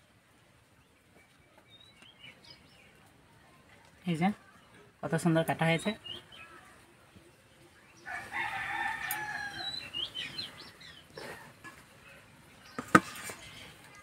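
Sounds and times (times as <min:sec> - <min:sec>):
rooster crowing: 0:08.0 - 0:10.0.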